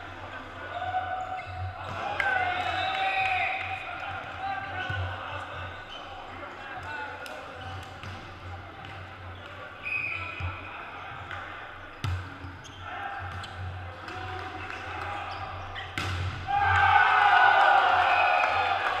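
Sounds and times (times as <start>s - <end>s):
murmur of players' voices: 0.0s - 19.0s
volleyball slaps echoing: 15.8s - 17.0s.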